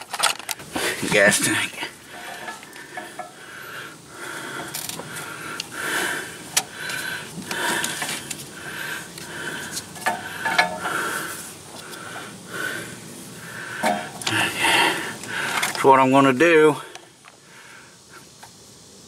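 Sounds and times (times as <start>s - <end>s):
scraping: 0.0s - 3.4s, 6.9s - 12.0s.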